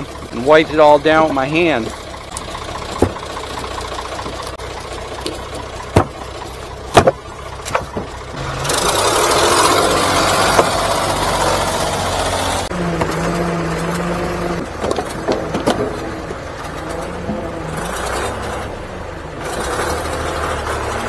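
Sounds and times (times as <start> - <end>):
engine idling: 0.0 - 21.0
logs knocking wood on wood: 2.3 - 8.2, 10.4 - 11.0, 14.6 - 16.4.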